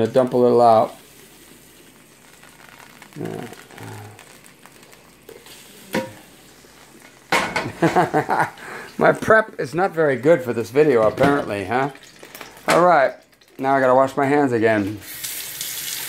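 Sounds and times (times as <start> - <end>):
oil sizzling in a frying pan: 0.0 - 9.3, 11.5 - 13.7, 14.8 - 16.0
man speaking loudly: 9.0 - 12.0, 12.7 - 15.0.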